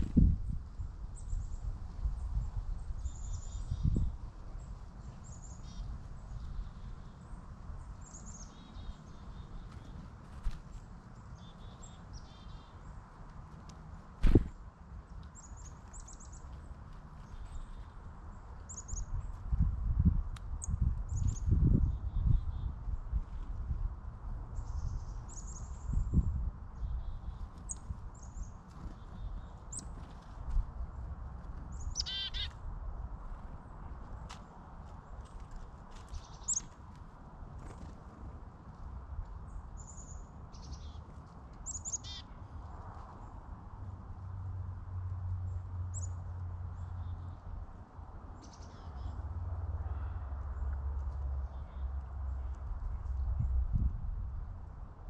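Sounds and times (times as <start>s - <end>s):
songbirds calling: 0.0s - 19.5s, 20.5s - 23.6s, 24.6s - 37.0s, 39.3s - 43.6s, 45.4s - 47.6s, 48.2s - 53.6s
small birds calling: 2.8s - 13.0s, 31.7s - 32.6s, 36.0s - 36.7s, 39.5s - 42.4s, 48.4s - 50.7s
harsh bird call: 32.0s - 32.5s.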